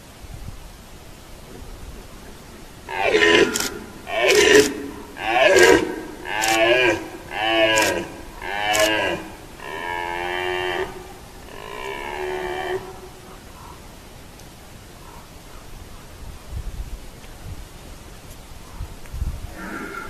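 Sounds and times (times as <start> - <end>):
deer stag roaring: 2.8 - 13.2, 19.5 - 20.0.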